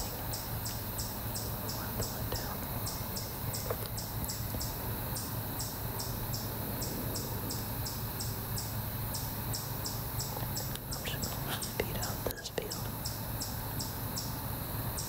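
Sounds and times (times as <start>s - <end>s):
insects chirping: 0.0s - 15.0s
low steady hum: 0.0s - 15.0s.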